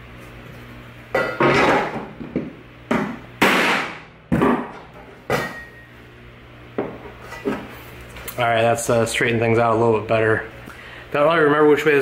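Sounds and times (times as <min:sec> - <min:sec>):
hammer striking metal plate: 0:03.0 - 0:05.7.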